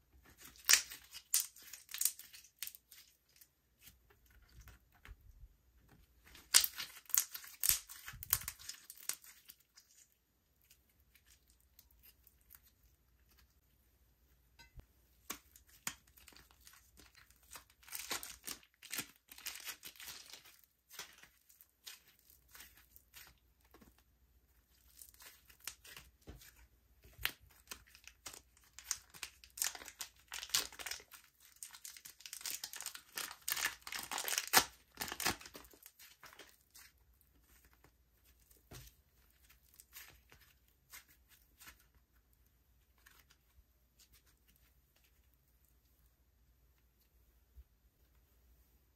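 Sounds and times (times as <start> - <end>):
slime crackling and popping: 0.2 - 3.4, 6.2 - 10.1, 15.2 - 24.0, 24.8 - 41.9.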